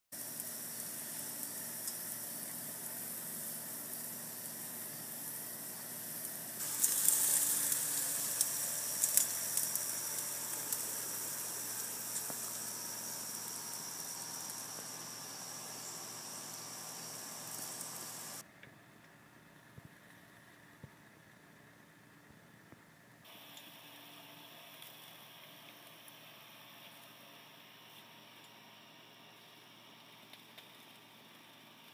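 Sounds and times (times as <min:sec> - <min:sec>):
chicken sizzling on a grill: 0:00.1 - 0:18.4, 0:23.3 - 0:31.9
fat popping and crackling: 0:06.6 - 0:16.5.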